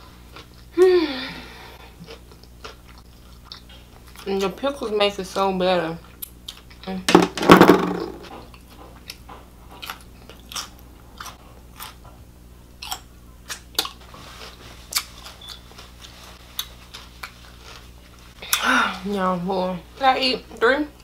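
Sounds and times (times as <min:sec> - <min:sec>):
chewing crunchy taco: 0:00.0 - 0:00.8, 0:01.8 - 0:04.5, 0:06.0 - 0:07.0, 0:08.4 - 0:18.6.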